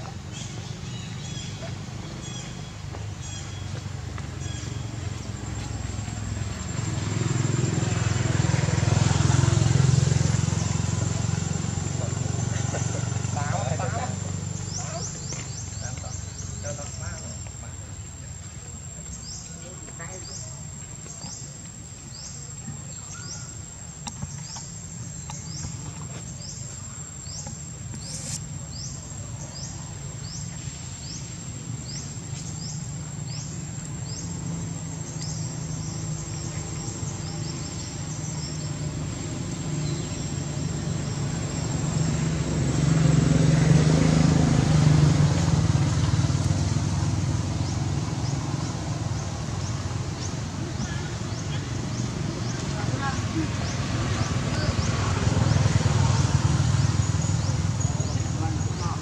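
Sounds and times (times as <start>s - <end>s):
high insect whine: 4.3s - 59.0s
short rising chirp: 28.0s - 28.5s.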